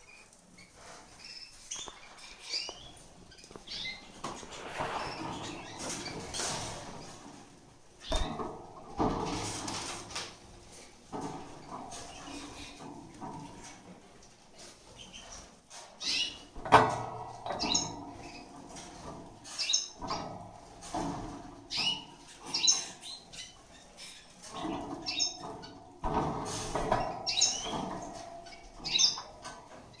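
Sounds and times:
bird chirping: 0.0 - 6.4
rustling in wire cage: 0.0 - 30.0.

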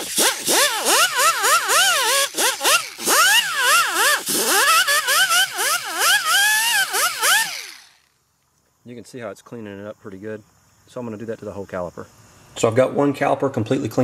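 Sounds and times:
wire wheel scratching metal: 0.0 - 8.0
die grinder whining: 0.0 - 8.1.

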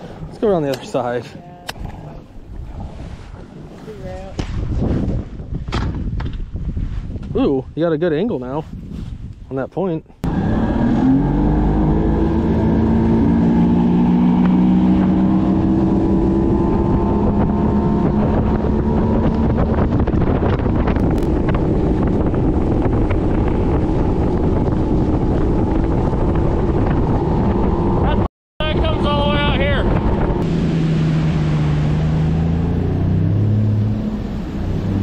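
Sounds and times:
wind buffeting microphone: 0.0 - 35.0
outboard motor revving: 10.2 - 35.0.

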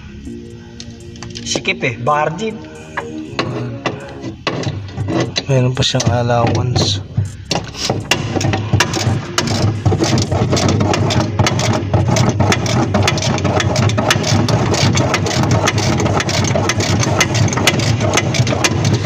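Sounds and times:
machinery humming: 0.0 - 19.0
rapid irregular clicking and rattling: 3.4 - 19.0.

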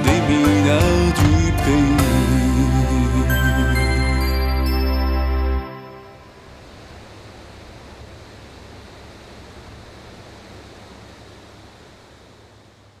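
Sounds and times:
low rumble: 0.0 - 5.5
steady background hiss: 0.0 - 13.0.

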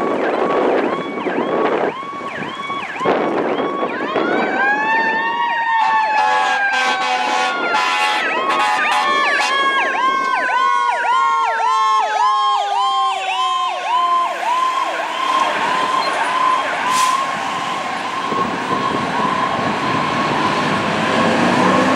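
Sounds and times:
electronic siren warbling: 7.5 - 21.9.

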